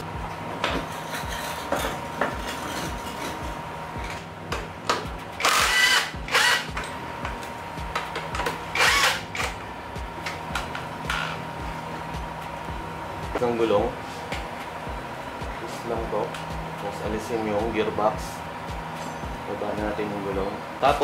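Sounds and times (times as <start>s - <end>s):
impact wrench hammering: 0.6s - 9.6s.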